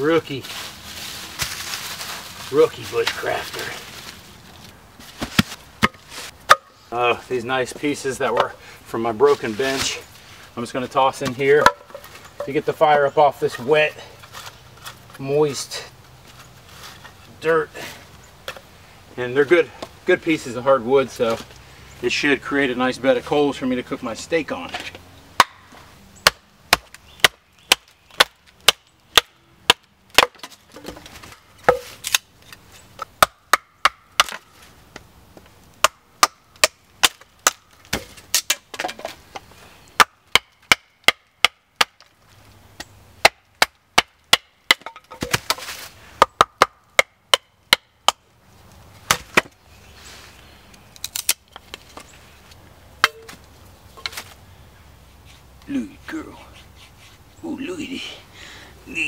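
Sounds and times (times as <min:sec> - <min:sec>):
wooden baton striking knife: 0:53.0 - 0:53.4.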